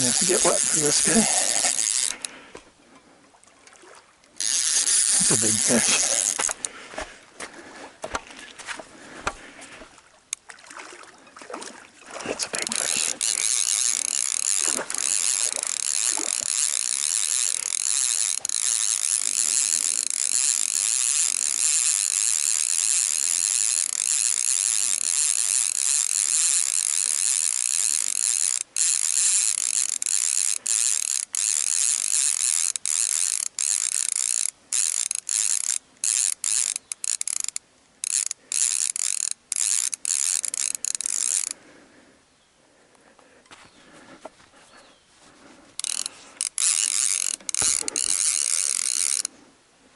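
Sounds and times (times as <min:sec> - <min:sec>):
fishing reel drag clicking: 0:00.0 - 0:02.6, 0:04.3 - 0:06.7, 0:12.5 - 0:41.6, 0:45.8 - 0:49.4.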